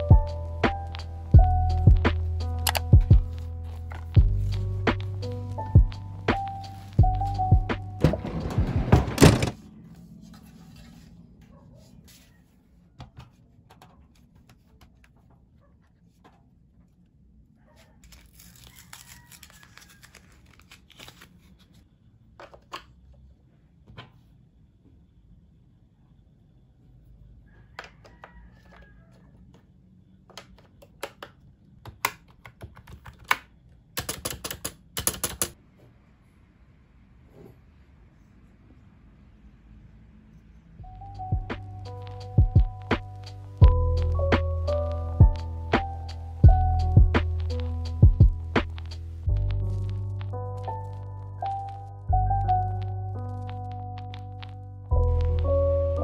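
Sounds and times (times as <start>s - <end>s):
background music: 0.0s - 9.4s, 40.8s - 56.0s
rapid typing on keyboard: 30.4s - 35.6s.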